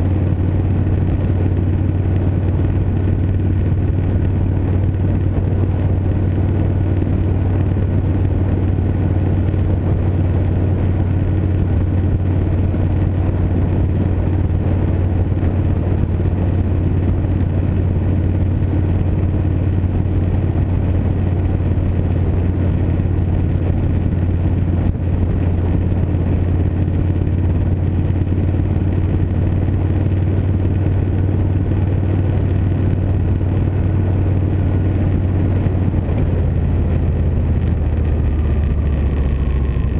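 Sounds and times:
motorcycle engine cruising: 0:00.0 - 0:39.9
road and wind noise: 0:00.0 - 0:39.9.

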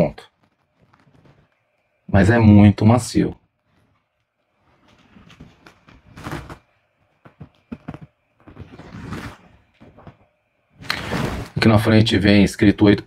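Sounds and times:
reel handling rubbing and rustling: 0:03.6 - 0:10.2.

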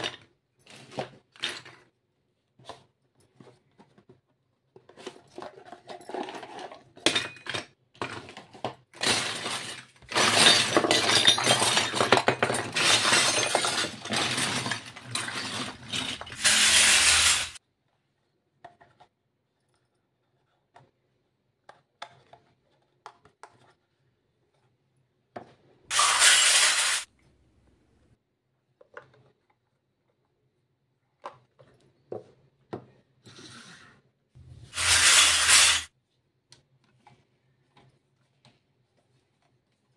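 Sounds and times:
toy utensils clattering together: 0:09.0 - 0:17.6, 0:25.9 - 0:27.1, 0:34.6 - 0:35.9.

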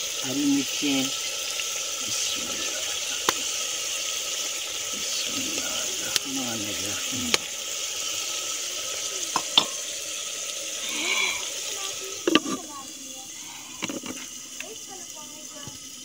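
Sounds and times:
steady hiss: 0:00.0 - 0:16.0
dish clicking against clay pot: 0:09.3 - 0:09.9, 0:12.2 - 0:12.6
food scraped into pot: 0:10.8 - 0:12.7, 0:13.5 - 0:14.3.

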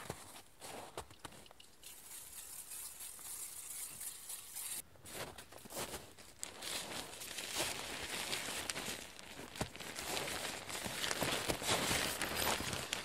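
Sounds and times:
tent fabric crinkling: 0:05.7 - 0:13.0.

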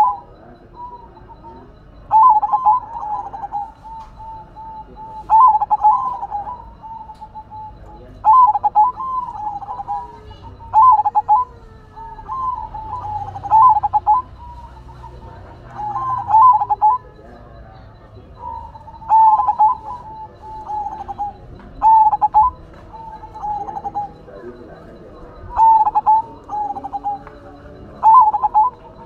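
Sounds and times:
dove cooing: 0:00.0 - 0:29.0.

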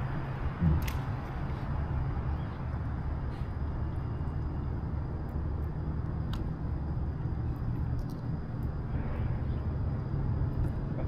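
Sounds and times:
kayak rumble and hiss: 0:06.2 - 0:11.0.

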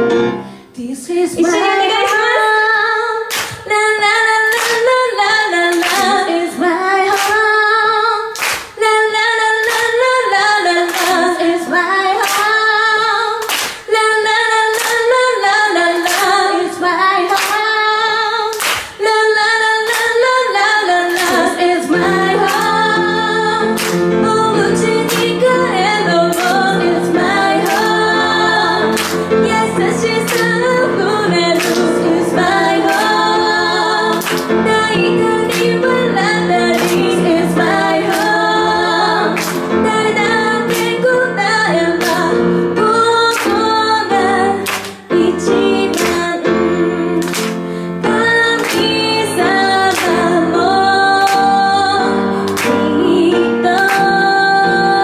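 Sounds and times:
piano accompaniment: 0:00.0 - 0:55.0
woman singing a ballad: 0:00.7 - 0:55.0
sharp claps: 0:03.3 - 0:03.7, 0:04.5 - 0:05.0, 0:05.7 - 0:06.3, 0:07.1 - 0:07.4, 0:08.3 - 0:08.8, 0:09.6 - 0:10.0, 0:10.9 - 0:11.3, 0:12.2 - 0:12.6, 0:13.4 - 0:13.9, 0:14.7 - 0:15.1, 0:16.0 - 0:16.4, 0:17.3 - 0:17.6, 0:18.5 - 0:19.0, 0:19.9 - 0:20.2, 0:21.1 - 0:21.6, 0:22.4 - 0:22.9, 0:23.7 - 0:24.1, 0:24.8 - 0:25.5, 0:26.3 - 0:26.8, 0:28.9 - 0:30.8, 0:31.4 - 0:32.2, 0:34.1 - 0:34.5, 0:35.5 - 0:35.9, 0:36.7 - 0:37.2, 0:38.1 - 0:38.6, 0:39.4 - 0:39.7, 0:40.7 - 0:41.0, 0:42.0 - 0:42.3, 0:44.6 - 0:45.0, 0:47.2 - 0:47.6, 0:48.6 - 0:48.9, 0:49.9 - 0:50.3, 0:52.5 - 0:52.9.

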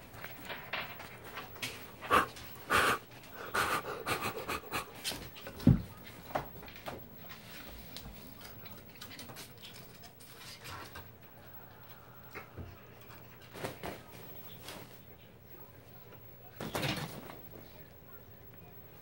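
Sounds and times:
raccoon huffing: 0:01.9 - 0:05.3.

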